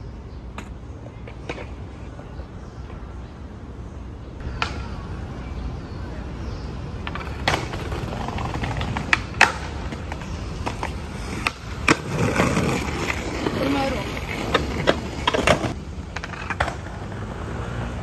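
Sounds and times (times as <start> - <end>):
skateboard clacks: 0.5 - 1.9, 7.0 - 17.4
skateboard wheels rumbling on paving: 7.0 - 18.0.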